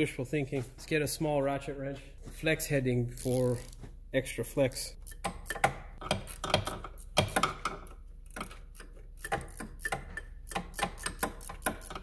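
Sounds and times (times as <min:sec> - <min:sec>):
ratchet wrench clicking: 0:03.2 - 0:03.7, 0:08.3 - 0:12.0.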